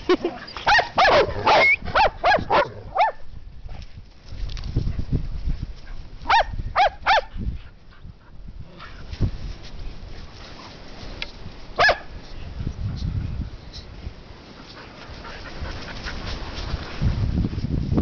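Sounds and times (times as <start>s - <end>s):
dog barking: 0.7s - 3.2s, 6.3s - 7.3s, 11.8s - 12.1s.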